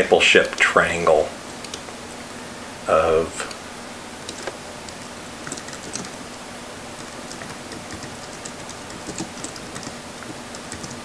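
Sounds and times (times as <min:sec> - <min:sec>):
background hiss: 0:00.0 - 0:11.0
keyboard key clicks: 0:07.3 - 0:11.0.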